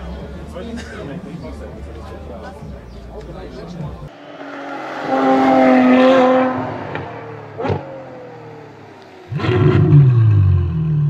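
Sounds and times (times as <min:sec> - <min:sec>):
car engine revving: 0:04.1 - 0:11.0.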